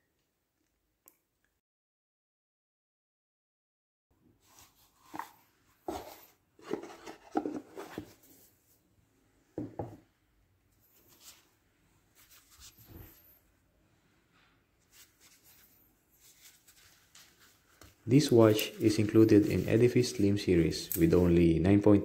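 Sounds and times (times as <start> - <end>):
gloved hands rubbing cardboard box: 16.2 - 20.4.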